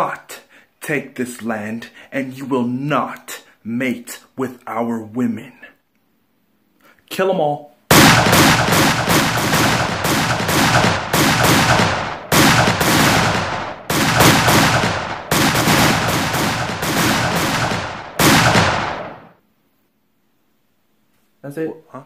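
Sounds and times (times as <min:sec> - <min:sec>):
automatic gunfire: 0:07.9 - 0:19.4.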